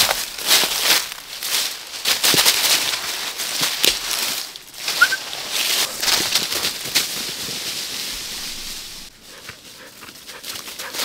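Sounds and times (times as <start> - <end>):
footsteps through dry leaves: 0.0 - 11.0
short high chirp: 5.0 - 5.2.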